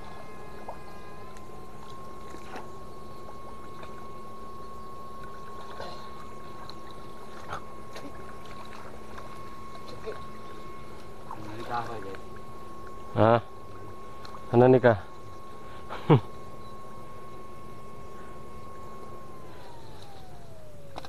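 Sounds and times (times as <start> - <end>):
electric shocker whine: 0.0 - 21.0
light water splashes: 5.2 - 13.1.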